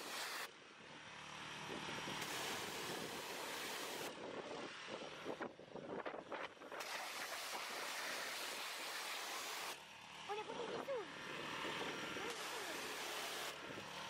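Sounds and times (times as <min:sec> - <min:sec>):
pressure washer jet spraying: 0:00.0 - 0:00.5, 0:02.2 - 0:04.1, 0:06.8 - 0:09.8, 0:12.2 - 0:13.6.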